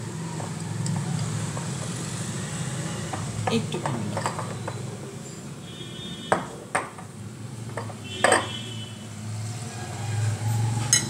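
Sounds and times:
metal spoon clinking on cookware: 0:03.5 - 0:04.8, 0:07.8 - 0:08.6.

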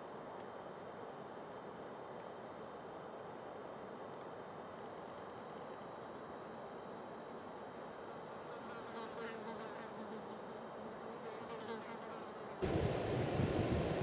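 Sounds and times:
flying insect buzzing: 0:08.2 - 0:12.8
wind rushing on microphone: 0:12.6 - 0:14.0.

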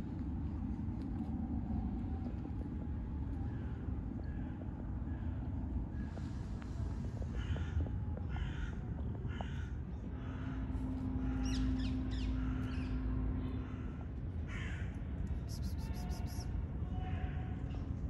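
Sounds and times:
low background rumble: 0:00.0 - 0:18.0
steady low hum: 0:00.0 - 0:18.0
crow cawing: 0:14.5 - 0:14.9.

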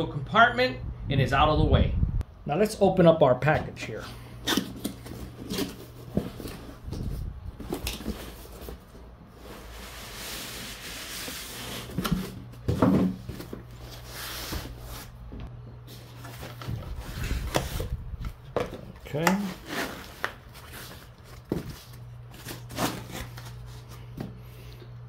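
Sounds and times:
foam packing rubbing: 0:04.5 - 0:12.6
cardboard sliding and scraping: 0:05.0 - 0:15.2.

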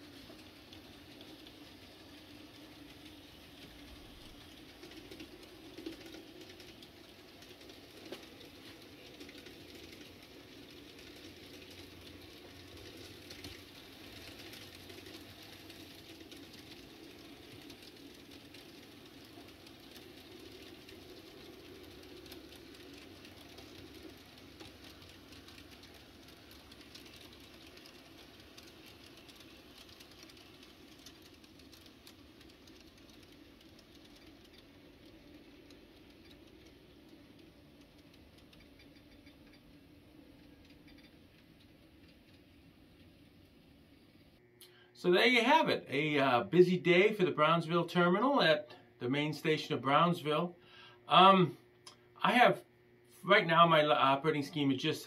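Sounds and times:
wheel clicks: 0:00.0 - 0:43.6
model locomotives whirring: 0:00.0 - 0:52.2.

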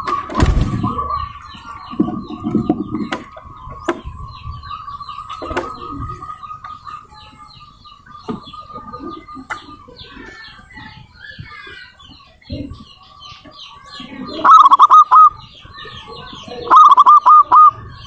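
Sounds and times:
small birds chirping: 0:00.0 - 0:18.0
dove cooing: 0:14.0 - 0:15.6, 0:16.4 - 0:18.0.

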